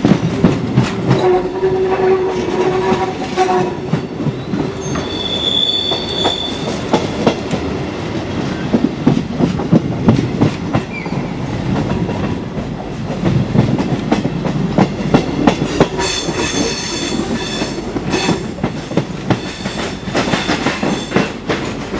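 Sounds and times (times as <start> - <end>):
wheels clacking over rail joints: 0.0 - 5.1, 5.9 - 21.9
train rumbling over tracks: 0.0 - 21.9
train wheels squealing: 4.4 - 6.8, 10.9 - 11.4, 16.0 - 18.5.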